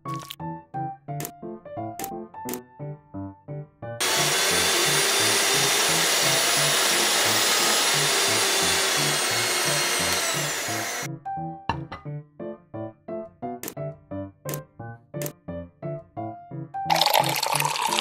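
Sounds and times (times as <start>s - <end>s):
background music with steady beat: 0.0s - 4.0s, 11.0s - 16.9s
small electric motor whirring: 4.0s - 11.1s.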